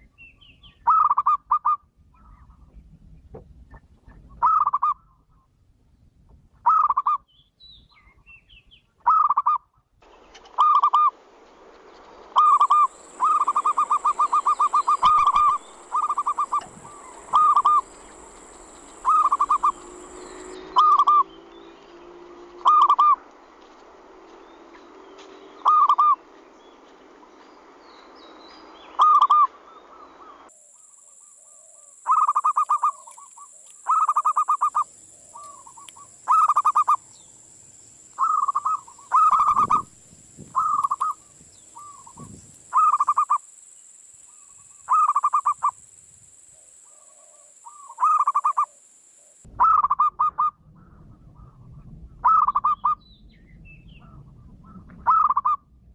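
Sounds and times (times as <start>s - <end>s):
dove cooing trills: 12.4s - 21.3s, 22.6s - 23.2s, 25.6s - 26.2s, 31.4s - 37.0s, 38.2s - 39.9s, 40.6s - 43.4s, 44.3s - 45.8s, 46.6s - 50.6s, 52.2s - 53.0s, 54.0s - 55.6s.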